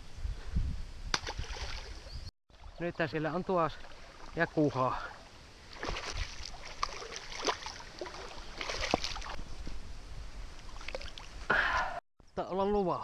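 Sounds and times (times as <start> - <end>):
water splashing and sloshing: 1.1 - 9.4, 10.5 - 11.5.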